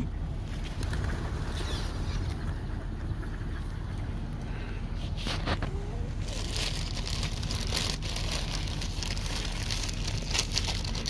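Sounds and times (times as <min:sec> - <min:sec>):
low steady hum: 0:00.0 - 0:11.0
plastic bag crinkling: 0:05.3 - 0:11.0.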